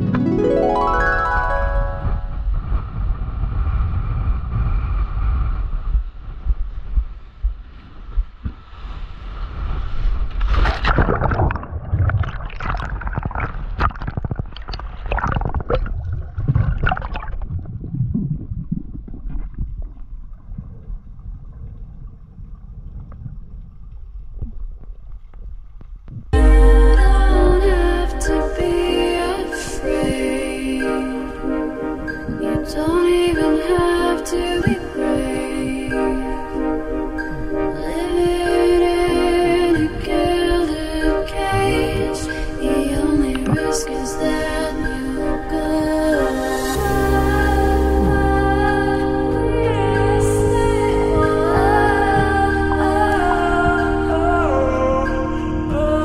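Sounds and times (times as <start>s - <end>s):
wind buffeting microphone: 2.0s - 46.4s
sharp water splashes: 10.2s - 17.6s.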